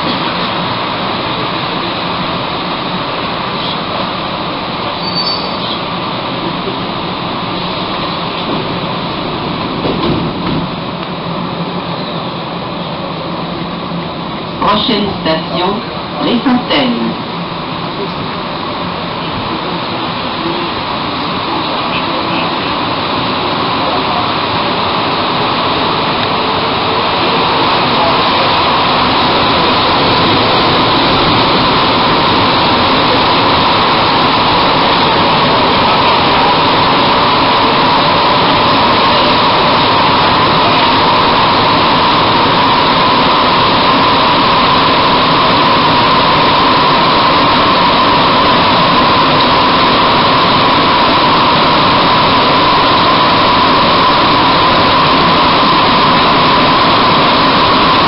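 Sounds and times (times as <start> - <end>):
train rushing through tunnel: 0.0 - 58.0.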